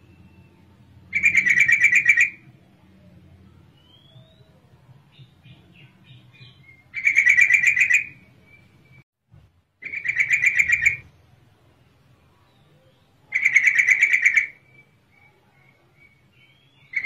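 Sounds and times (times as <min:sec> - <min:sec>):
bird calling rapid notes: 0:01.1 - 0:02.5, 0:06.6 - 0:08.7, 0:09.8 - 0:11.1, 0:13.3 - 0:14.9.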